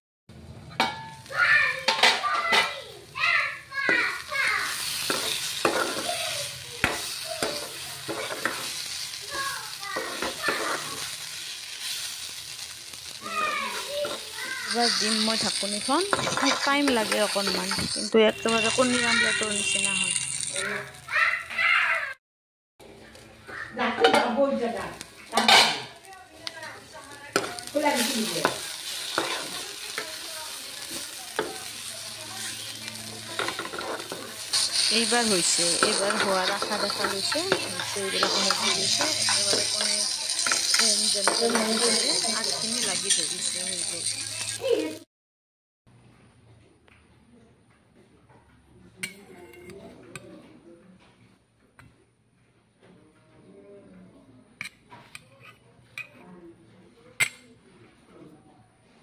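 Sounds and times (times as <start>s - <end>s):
greens sizzling in oil: 0.8s - 22.1s, 23.1s - 45.1s
steel spatula scraping a pan: 3.9s - 21.0s, 27.3s - 45.0s.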